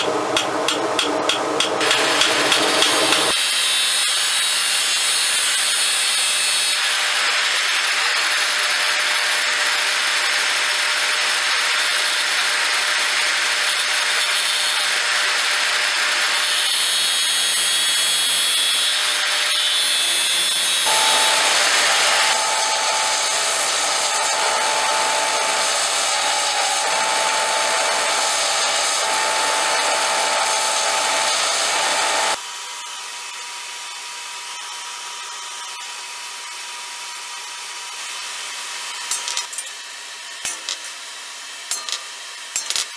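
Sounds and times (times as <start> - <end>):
angle grinder cutting steel: 0.0 - 32.4, 37.6 - 42.9
steady whine: 20.9 - 32.4.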